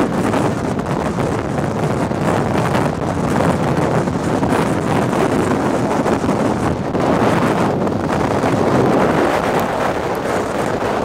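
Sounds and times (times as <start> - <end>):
strong wind buffeting: 0.0 - 11.0.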